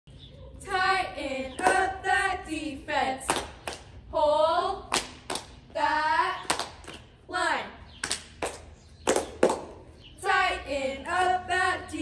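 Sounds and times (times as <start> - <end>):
girls chanting a cheer: 0.5 - 3.5, 4.1 - 4.9, 10.2 - 12.0.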